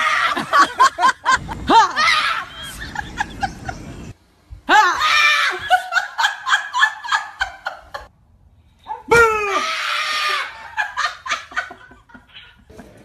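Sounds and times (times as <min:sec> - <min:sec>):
people laughing: 0:00.2 - 0:01.6, 0:02.2 - 0:04.0, 0:05.5 - 0:08.1, 0:10.2 - 0:13.0
woman screaming: 0:04.7 - 0:05.8, 0:09.0 - 0:10.8.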